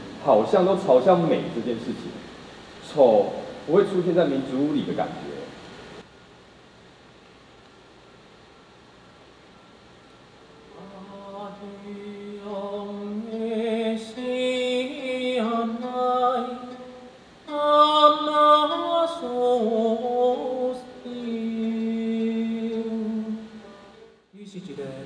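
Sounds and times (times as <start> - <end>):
person singing slow song: 10.5 - 25.0.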